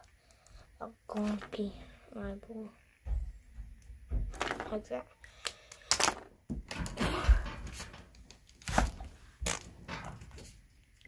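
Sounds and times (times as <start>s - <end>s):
rustling and scraping: 1.1s - 1.7s, 5.9s - 10.7s.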